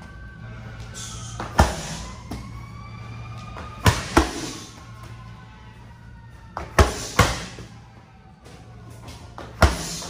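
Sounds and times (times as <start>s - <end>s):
medicine balls thudding on rubber floor: 1.4s - 2.6s, 3.4s - 4.6s, 6.5s - 7.8s, 8.4s - 10.0s.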